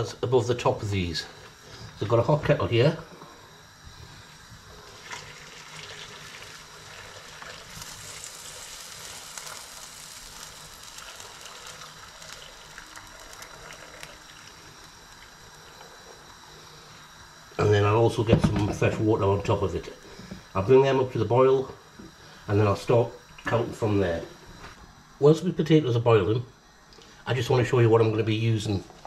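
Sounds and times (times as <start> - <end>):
low steady hum: 0.0 - 29.0
water pouring into a pot: 4.9 - 16.2.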